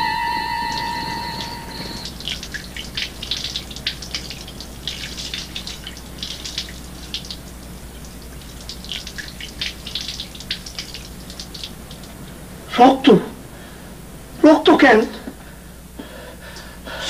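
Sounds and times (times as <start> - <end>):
low steady hum: 0.0 - 17.0
liquid pouring and splashing: 2.0 - 12.3.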